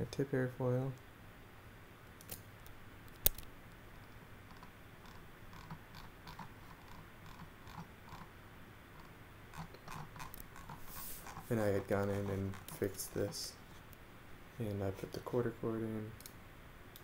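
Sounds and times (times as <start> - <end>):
low room noise: 0.0 - 17.0
computer mouse clicking: 4.5 - 8.3.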